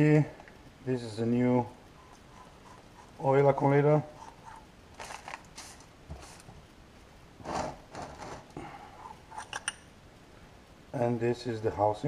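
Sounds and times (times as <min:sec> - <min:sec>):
handling scrapes and rustles: 0:04.2 - 0:06.6.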